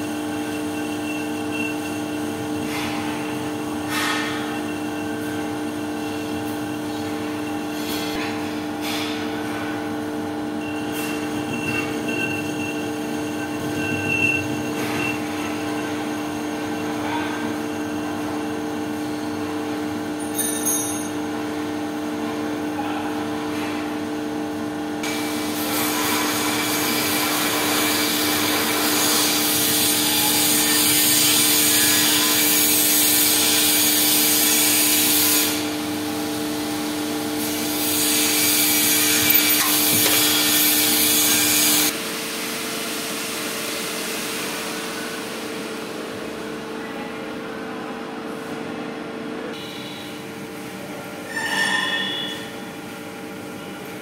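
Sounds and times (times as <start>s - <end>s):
lathe motor whine: 0.0s - 18.4s, 37.2s - 42.2s.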